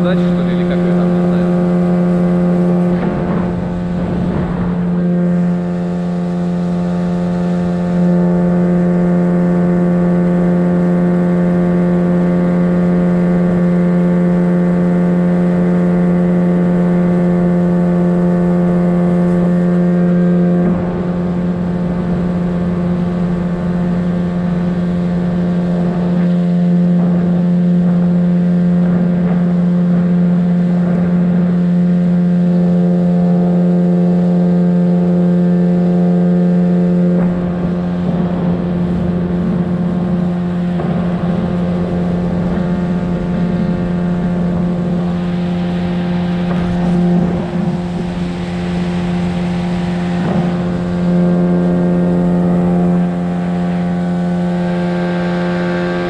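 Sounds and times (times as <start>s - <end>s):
motorboat engine droning: 0.0s - 56.0s.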